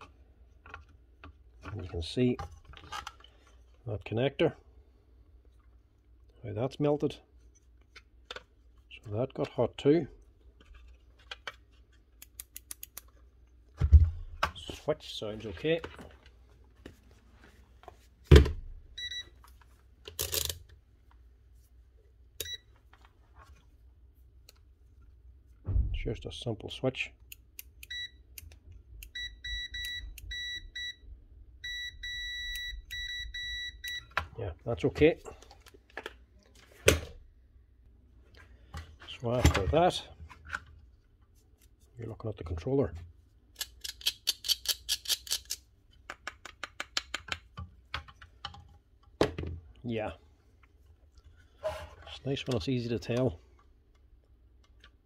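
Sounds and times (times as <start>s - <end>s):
multimeter beeping: 19.0s - 19.3s, 27.8s - 28.2s, 29.0s - 31.0s, 31.6s - 34.1s.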